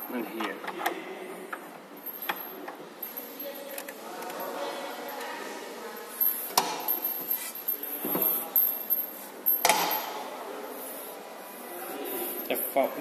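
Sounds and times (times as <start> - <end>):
rubbing and handling noise: 6.0 - 9.7.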